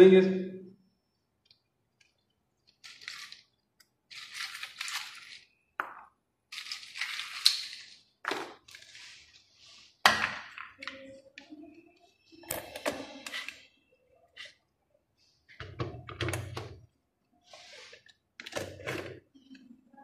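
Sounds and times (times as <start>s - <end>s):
ice cubes clinking: 2.8s - 5.6s, 6.5s - 8.0s.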